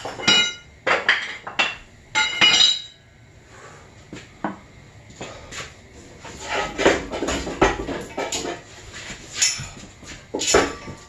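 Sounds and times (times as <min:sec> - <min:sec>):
metal tools clinking: 0:00.0 - 0:01.4, 0:09.4 - 0:09.8.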